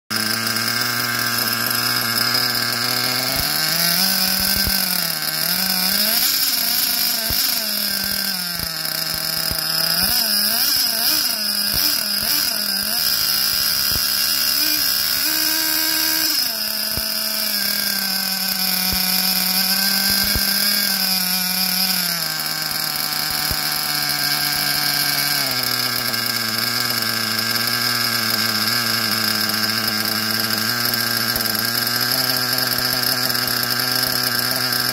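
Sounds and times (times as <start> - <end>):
nitro glow engine running: 0.1 - 34.9.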